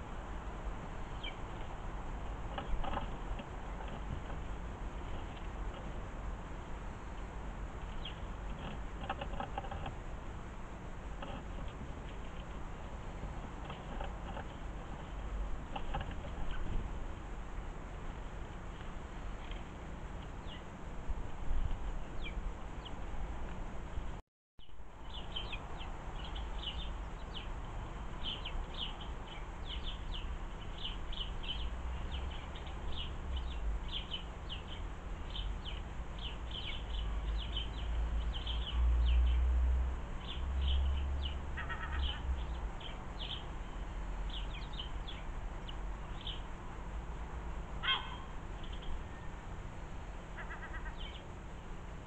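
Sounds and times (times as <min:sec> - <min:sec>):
sparrows chirping: 0:01.0 - 0:06.1, 0:06.9 - 0:09.9, 0:19.4 - 0:20.8, 0:21.9 - 0:23.1, 0:24.6 - 0:46.7, 0:47.8 - 0:49.4, 0:50.3 - 0:51.4.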